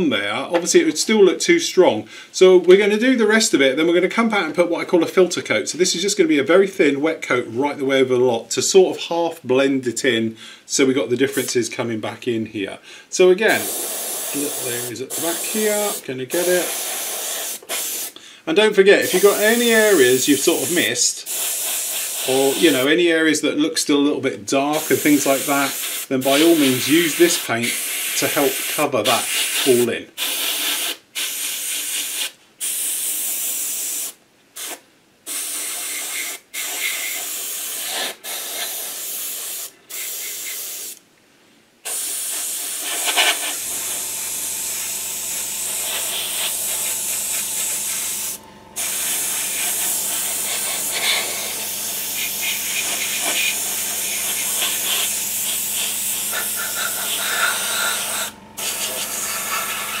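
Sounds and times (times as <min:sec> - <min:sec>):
airbrush spraying hiss: 0:11.3 - 0:11.6, 0:13.5 - 0:18.2, 0:19.0 - 0:22.9, 0:24.7 - 0:41.0, 0:41.8 - 1:00.0
low steady hum: 0:43.6 - 1:00.0.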